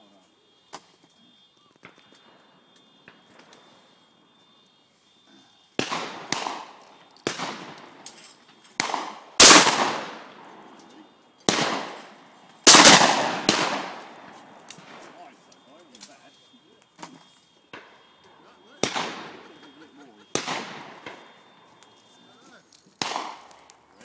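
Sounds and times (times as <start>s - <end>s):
shotguns firing: 5.8s - 10.8s, 11.4s - 15.2s, 17.6s - 21.9s, 22.9s - 23.9s.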